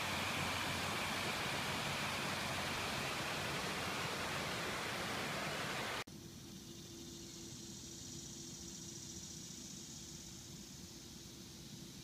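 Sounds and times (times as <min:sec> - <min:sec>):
creek water rushing over rocks: 0:00.0 - 0:06.0.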